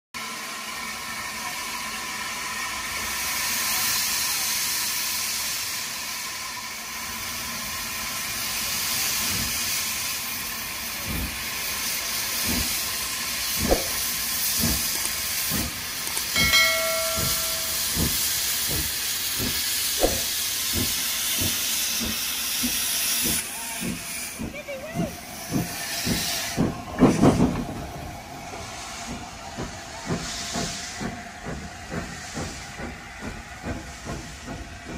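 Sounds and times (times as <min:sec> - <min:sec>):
steam hissing: 0:00.2 - 0:34.9
steam locomotive exhaust chuffs: 0:00.2 - 0:34.9.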